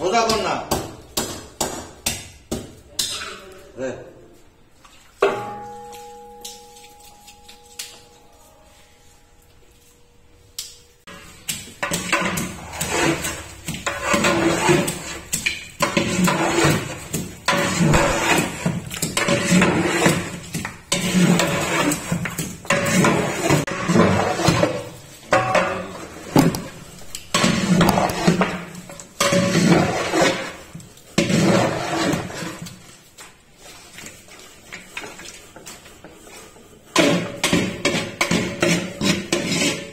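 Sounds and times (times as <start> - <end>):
metal rod scraping in cooking pot: 11.1 - 32.9, 34.2 - 39.9.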